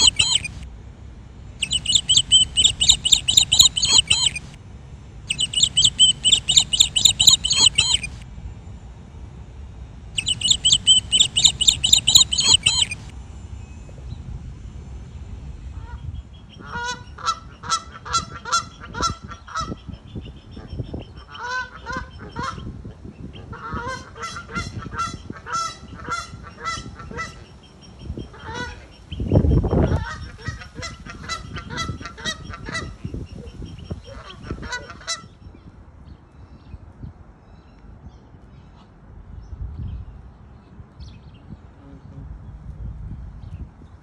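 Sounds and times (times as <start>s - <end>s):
geese honking: 0.0s - 0.6s, 1.6s - 4.6s, 5.3s - 8.2s, 10.2s - 13.1s.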